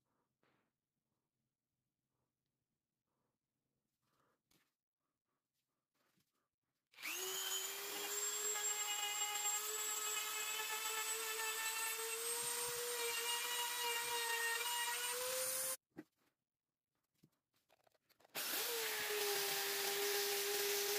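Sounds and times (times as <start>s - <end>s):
rotary tool whining: 7.0s - 15.8s.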